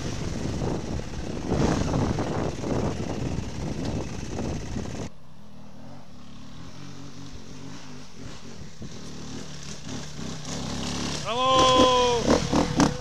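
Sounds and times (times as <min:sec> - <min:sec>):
two-stroke bike engine wavering: 0:00.0 - 0:05.1, 0:06.2 - 0:13.0
wind noise on microphone: 0:00.0 - 0:05.1, 0:08.2 - 0:10.7
motorcycle engine running: 0:00.0 - 0:13.0.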